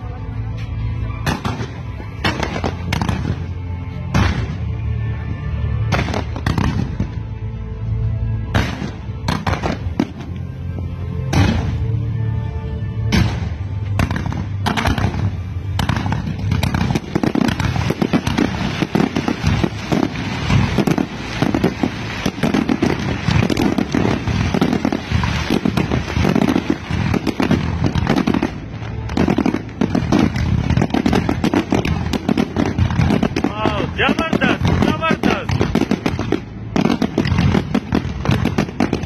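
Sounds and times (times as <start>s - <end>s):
fireworks bangs and crackling: 0.0s - 7.4s, 8.4s - 12.2s, 13.0s - 39.0s.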